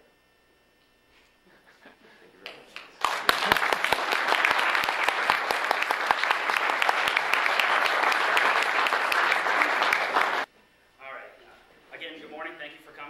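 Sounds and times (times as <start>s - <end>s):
audience applauding: 2.8s - 10.5s.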